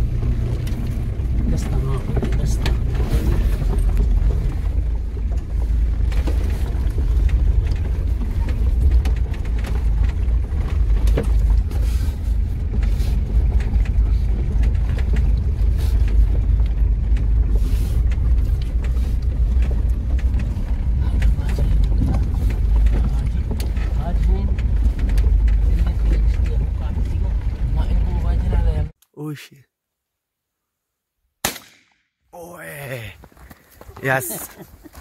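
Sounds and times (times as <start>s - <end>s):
vehicle engine and tyre rumble: 0.0s - 29.0s, 32.4s - 35.0s
knocks and rattles: 0.1s - 28.5s.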